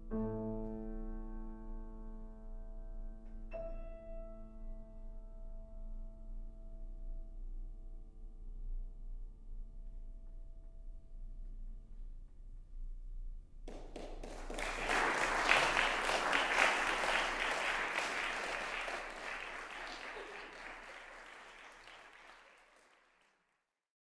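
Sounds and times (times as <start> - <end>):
audience applauding: 13.7 - 23.5.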